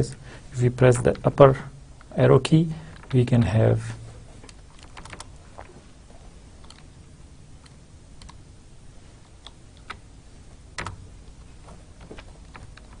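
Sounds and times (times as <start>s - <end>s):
computer keyboard key clicks: 4.5s - 5.3s.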